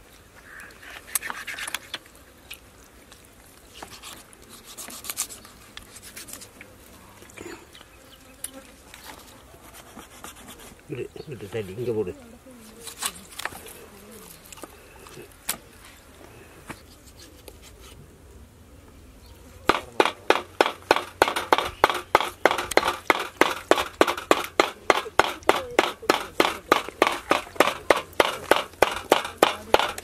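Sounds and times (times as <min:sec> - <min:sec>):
knife chopping chicken on wood: 0:19.7 - 0:30.0.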